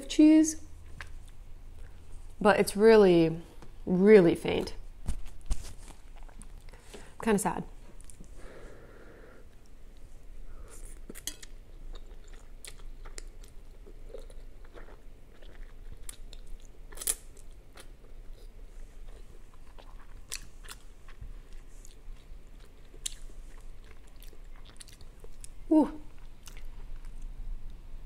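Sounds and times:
person chewing noodles: 9.5s - 27.4s.

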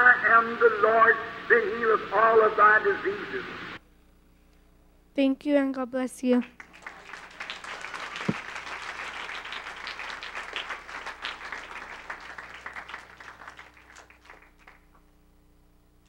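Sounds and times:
crowd clapping: 6.4s - 15.1s.

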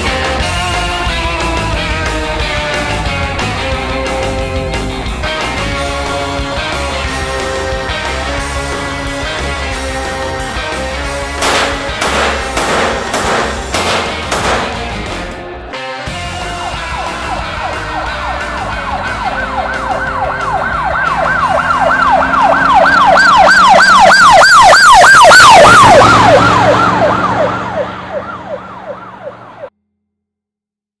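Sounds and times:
emergency siren yelping: 16.4s - 29.7s.

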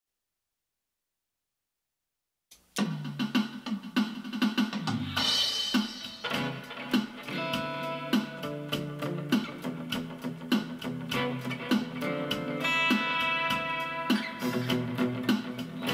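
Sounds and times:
steady drum beat: 2.6s - 15.9s
held guitar notes: 6.1s - 15.9s.

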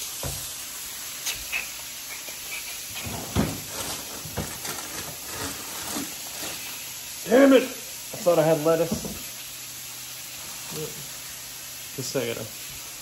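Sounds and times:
fish frying in hot oil: 0.0s - 13.0s
kitchen things knocking: 3.0s - 5.1s, 8.9s - 9.3s.

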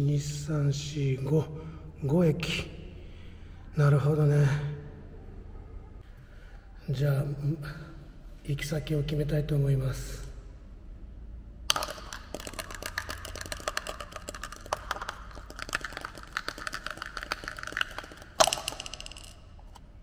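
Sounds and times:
dice clattering on countertop: 11.7s - 19.8s
dice rattling in plastic pot: 11.7s - 19.8s.

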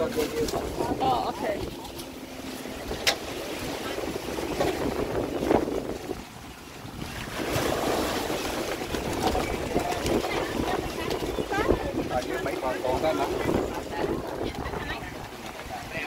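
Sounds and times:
wind buffeting microphone: 0.0s - 16.0s
faint voices: 8.8s - 16.0s.

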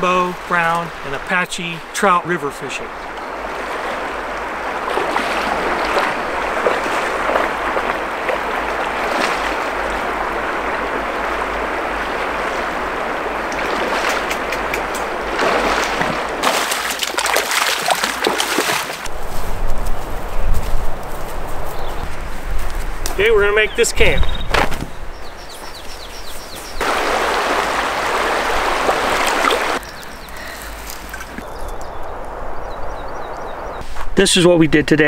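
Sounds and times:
splashing wading steps: 2.8s - 19.1s, 26.8s - 31.6s
river water flowing over rocks: 3.1s - 19.1s, 26.8s - 31.5s.

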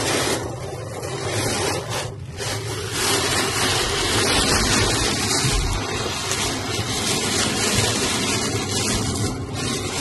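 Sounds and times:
heavy rain on car: 0.0s - 10.0s
road and engine rumble: 0.0s - 10.0s.

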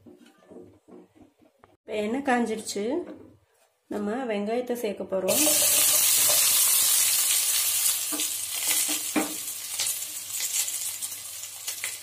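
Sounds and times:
onions sizzling in oil: 5.3s - 12.0s.

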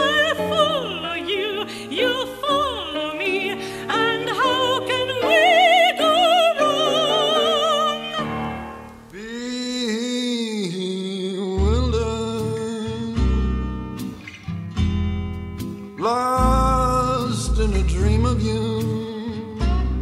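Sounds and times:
operatic singing with vibrato: 0.0s - 13.2s.

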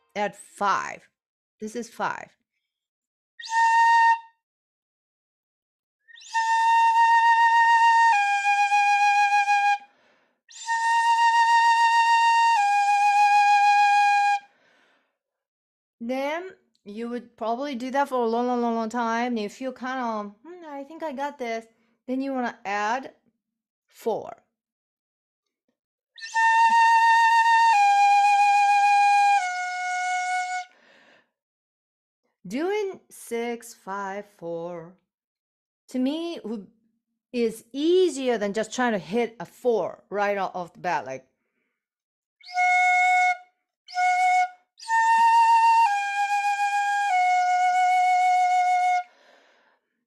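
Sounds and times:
transverse flute long notes: 26.2s - 30.7s, 42.4s - 49.1s.

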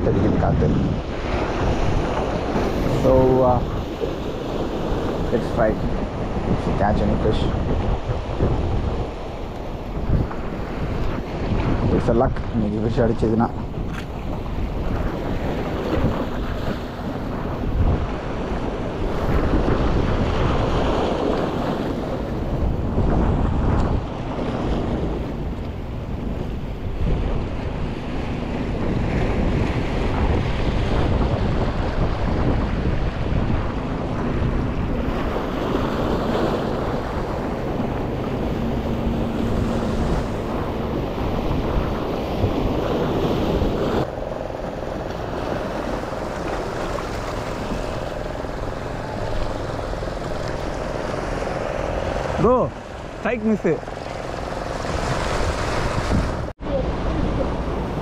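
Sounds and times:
wind buffeting microphone: 0.0s - 58.0s
waves washing against rocks: 26.2s - 58.0s.

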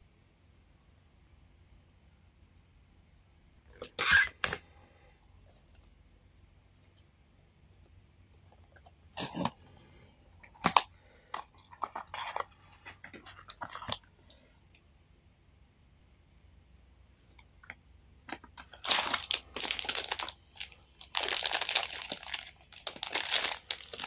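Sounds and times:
packaging crackling: 10.4s - 14.1s, 18.3s - 24.0s
cardboard tearing: 18.7s - 20.3s.

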